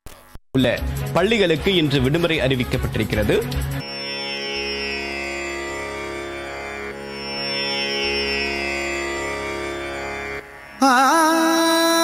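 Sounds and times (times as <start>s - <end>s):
indian classical string music: 1.6s - 12.0s
steady drone: 3.8s - 11.7s.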